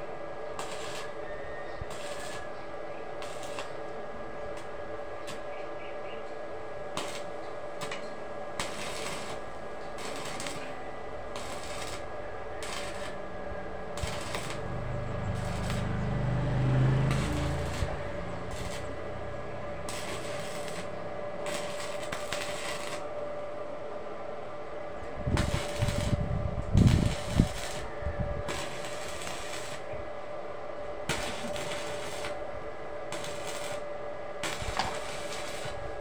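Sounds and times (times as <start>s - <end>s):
welding arc crackling and sizzling: 0.0s - 5.5s, 6.7s - 23.2s, 25.3s - 30.1s, 31.0s - 36.0s
low rumble: 14.0s - 21.6s.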